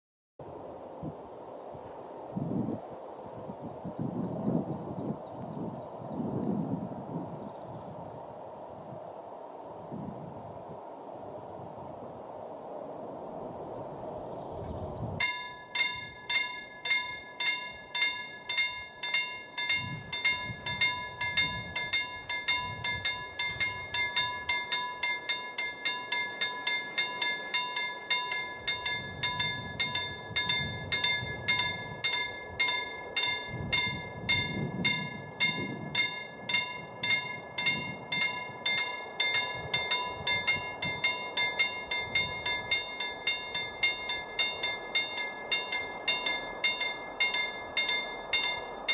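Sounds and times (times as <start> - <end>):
level crossing bell ringing: 15.2 - 48.9.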